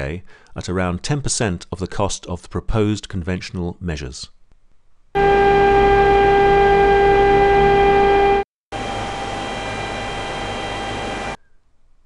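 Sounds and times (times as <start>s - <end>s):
industrial fan running: 5.2s - 11.4s.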